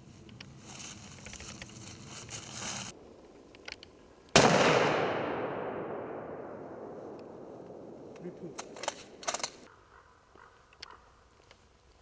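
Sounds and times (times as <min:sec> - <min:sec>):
rifle shot echoing: 0:04.3 - 0:08.2.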